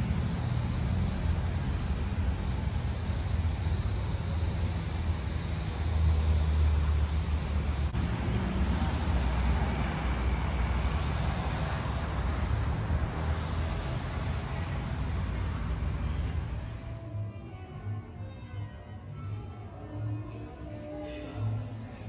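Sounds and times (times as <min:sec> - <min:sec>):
vehicle rumble: 0:00.0 - 0:17.4.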